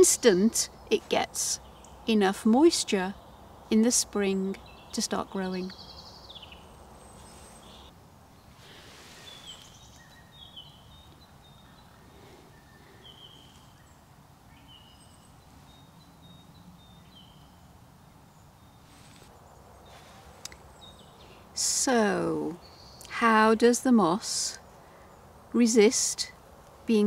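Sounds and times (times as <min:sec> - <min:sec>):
faint background noise: 0:00.0 - 0:27.0
small bird chirping: 0:03.1 - 0:21.6
soft rustle: 0:07.0 - 0:11.2, 0:18.7 - 0:21.4.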